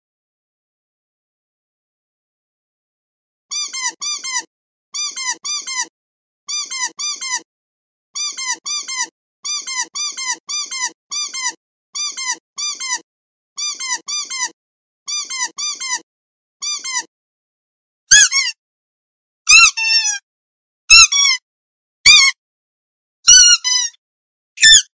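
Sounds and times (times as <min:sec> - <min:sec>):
squeaky toy squeaking: 0:03.5 - 0:05.9, 0:06.5 - 0:07.5, 0:08.2 - 0:13.0, 0:13.6 - 0:16.0, 0:16.6 - 0:17.1, 0:18.1 - 0:18.6, 0:19.5 - 0:20.2, 0:20.9 - 0:21.4, 0:22.0 - 0:22.4, 0:23.3 - 0:24.0, 0:24.6 - 0:24.9.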